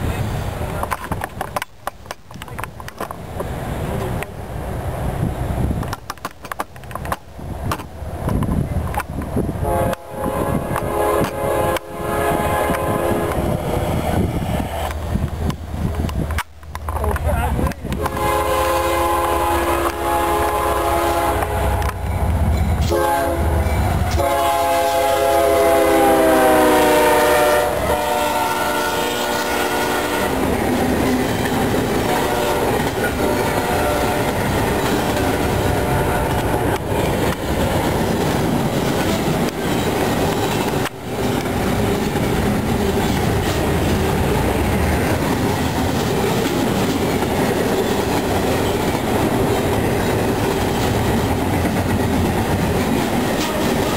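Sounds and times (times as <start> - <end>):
train wheels on rails: 0.0 - 53.9
train air horn blasts: 9.6 - 13.6, 17.9 - 22.0, 22.8 - 30.5, 32.0 - 36.8.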